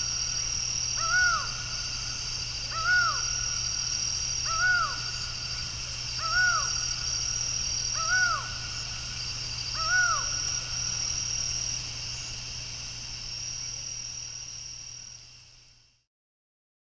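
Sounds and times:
falcon calling: 0:04.5 - 0:05.1.

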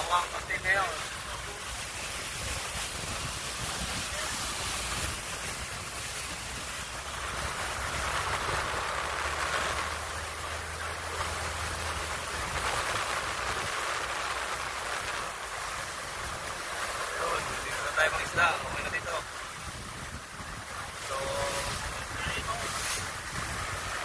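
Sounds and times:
boat engine drone: 0:00.0 - 0:24.0
water rushing past: 0:00.0 - 0:24.0
wind buffeting microphone: 0:00.0 - 0:24.0.

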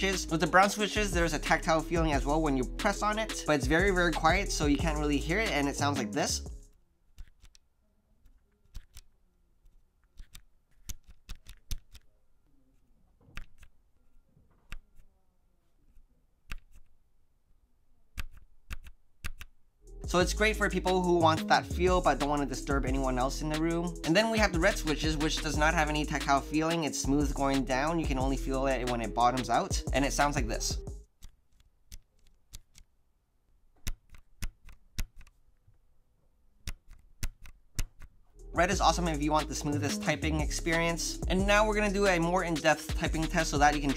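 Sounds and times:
soft keyboard key clicks: 0:08.2 - 0:09.1, 0:10.0 - 0:12.1, 0:13.2 - 0:13.8, 0:16.4 - 0:17.0, 0:18.1 - 0:19.6, 0:31.1 - 0:32.9, 0:33.8 - 0:35.4, 0:36.6 - 0:38.1.

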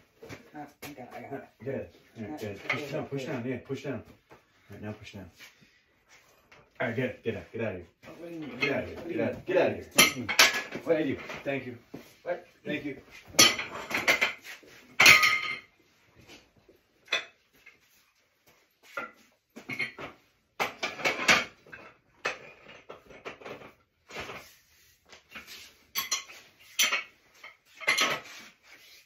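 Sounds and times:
metal pipe tools clanking: 0:08.4 - 0:09.0, 0:09.8 - 0:11.5, 0:13.3 - 0:15.7, 0:25.3 - 0:28.3.

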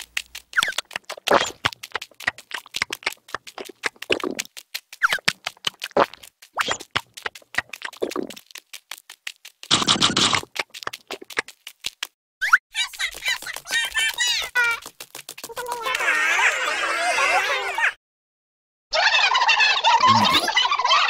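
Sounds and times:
cartoon tiny clicking steps: 0:00.0 - 0:16.3
squeaky cartoon vocalizations: 0:20.0 - 0:20.6.

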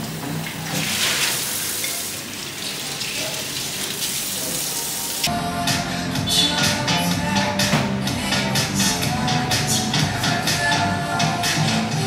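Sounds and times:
music: 0:04.8 - 0:12.0.

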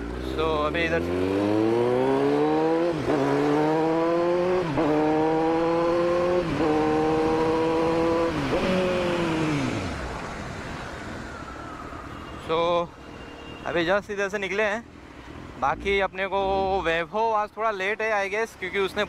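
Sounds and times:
motorcycle engine accelerating: 0:00.0 - 0:10.3.

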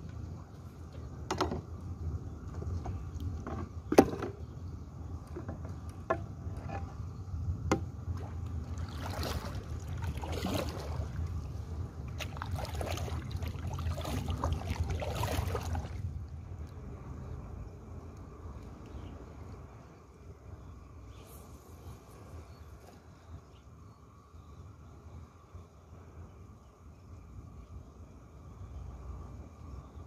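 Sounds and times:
sharp knocks on boat: 0:01.2 - 0:01.7, 0:02.8 - 0:04.4, 0:07.6 - 0:07.9
paddle splashing in water: 0:07.7 - 0:16.0.

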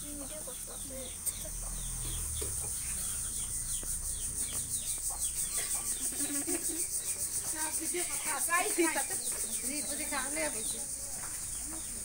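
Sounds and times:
pulsing insect drone: 0:00.0 - 0:11.9.

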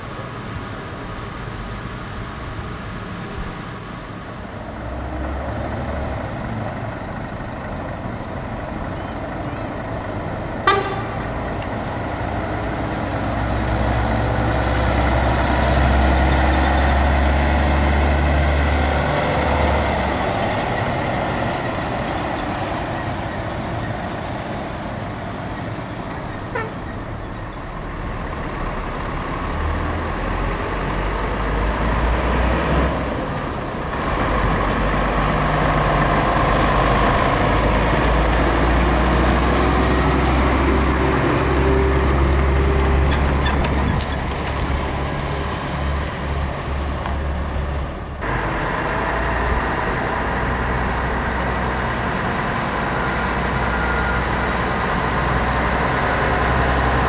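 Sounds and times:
heavy trucks driving past: 0:00.0 - 0:57.0.

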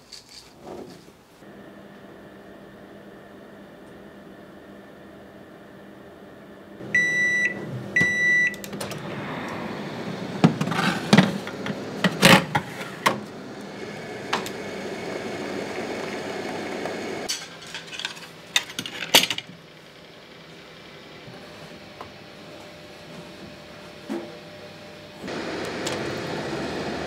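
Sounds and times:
microwave oven beeping: 0:01.4 - 0:17.3, 0:24.8 - 0:27.0
microwave oven humming: 0:01.4 - 0:17.3, 0:18.2 - 0:27.0.

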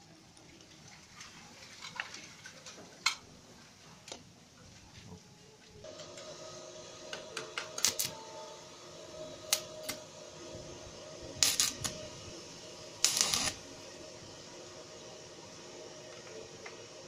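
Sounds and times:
faint steady hum: 0:00.0 - 0:17.0
crackle: 0:07.8 - 0:08.2, 0:11.4 - 0:12.0, 0:13.0 - 0:13.6.

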